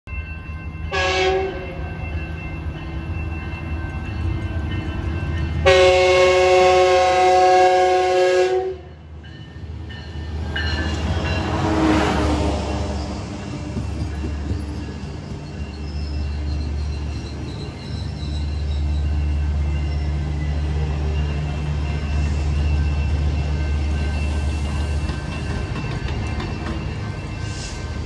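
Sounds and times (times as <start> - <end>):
train cars rolling past: 0.1 - 28.0
train horn chord blasts: 0.9 - 1.9, 5.6 - 9.0.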